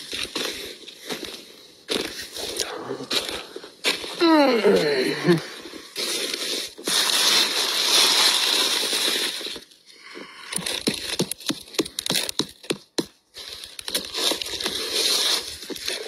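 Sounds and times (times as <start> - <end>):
dry leaves rustling and crackling: 5.1 - 9.7, 13.4 - 16.0.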